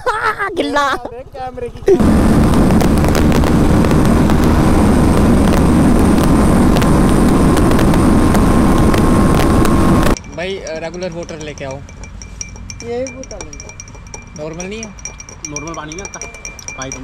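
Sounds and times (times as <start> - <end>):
motorcycle engine running: 1.1 - 17.0
rush of wind: 2.0 - 10.2.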